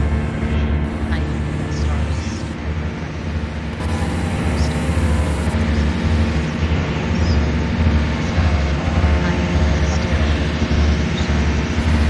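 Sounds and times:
dense droning rumble: 0:00.0 - 0:12.0.

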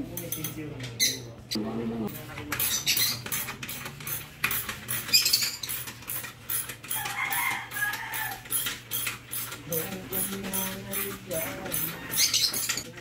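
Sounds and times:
ratchet wrench clicking: 0:02.5 - 0:12.8
rooster crowing: 0:06.9 - 0:08.6.

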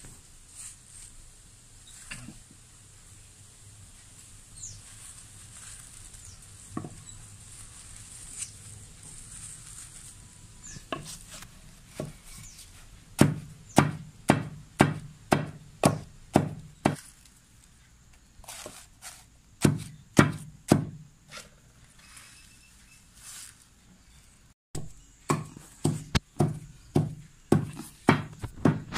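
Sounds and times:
pestle pounding in mortar: 0:13.2 - 0:17.0, 0:19.6 - 0:21.1, 0:24.8 - 0:28.9.

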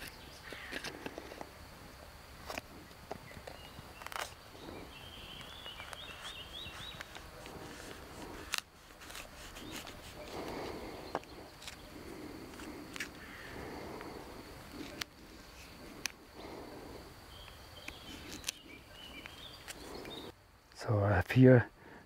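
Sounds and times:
high bird chirps: 0:03.5 - 0:07.1, 0:17.3 - 0:20.3
knife scraping fungus: 0:05.3 - 0:13.4.

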